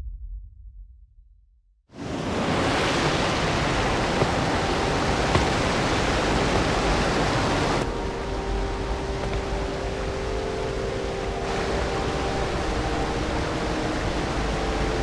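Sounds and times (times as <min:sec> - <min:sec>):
rushing water from waterfalls: 0:02.0 - 0:15.0
faint steady tones: 0:03.4 - 0:15.0.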